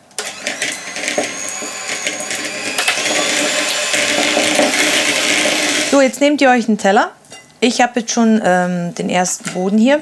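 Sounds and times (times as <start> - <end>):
electric hand mixer whining: 0.2 - 6.0.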